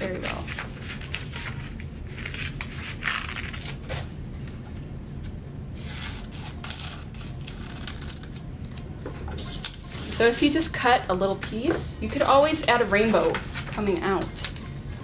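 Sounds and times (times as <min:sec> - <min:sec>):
scissors cutting paper: 0:00.0 - 0:04.1, 0:05.8 - 0:10.7
steady low hum: 0:00.0 - 0:15.0.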